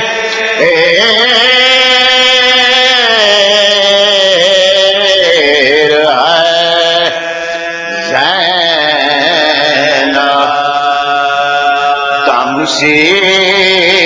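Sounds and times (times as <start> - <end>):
man singing devotional recitation: 0.0 - 14.0.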